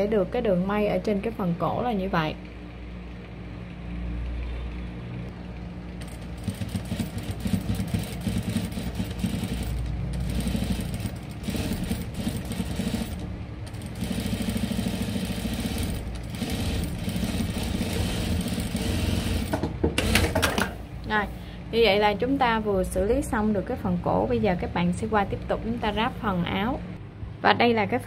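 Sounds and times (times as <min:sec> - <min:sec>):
industrial sewing machine stitching: 0:06.0 - 0:20.8.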